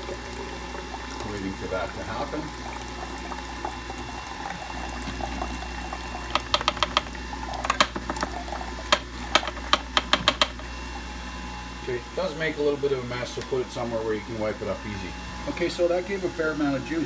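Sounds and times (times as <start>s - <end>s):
juice trickling into a glass: 0.0s - 9.9s
juicer motor humming: 0.0s - 17.0s.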